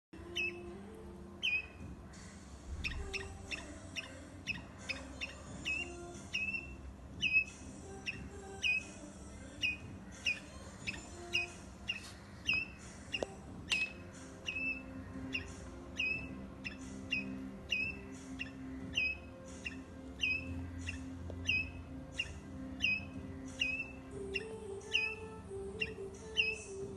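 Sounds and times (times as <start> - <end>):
squirrel chirping: 0.2 - 0.8, 1.4 - 26.9.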